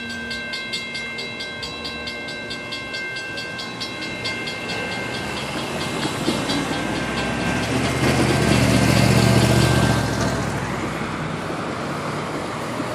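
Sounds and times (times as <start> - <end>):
railroad crossing bell ringing: 0.0 - 10.7
motorhome engine hum passing: 5.0 - 12.9.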